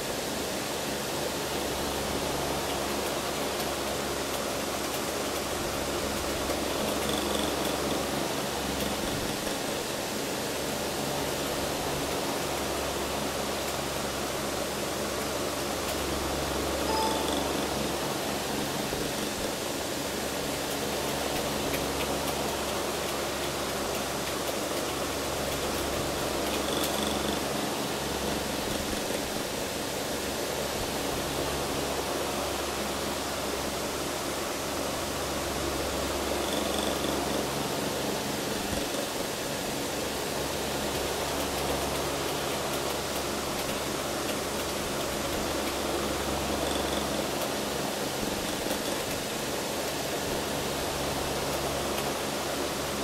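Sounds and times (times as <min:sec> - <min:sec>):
electric fan whooshing air: 0:00.0 - 0:36.4.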